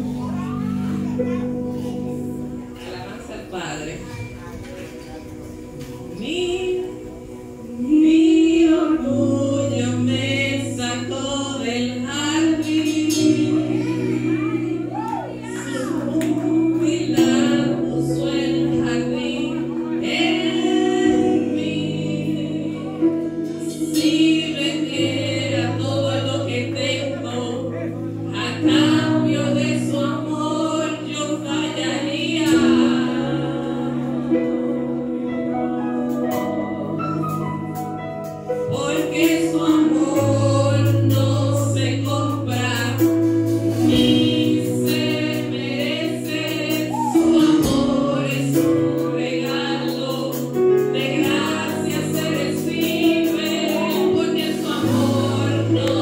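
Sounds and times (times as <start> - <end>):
woman singing into microphone: 0.0 - 37.4, 38.6 - 56.0
keyboard chords: 0.0 - 56.0
drum kit: 42.1 - 56.0.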